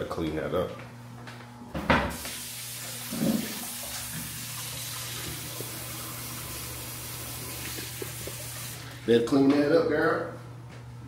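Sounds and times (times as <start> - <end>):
faucet water running into sink: 2.1 - 9.0.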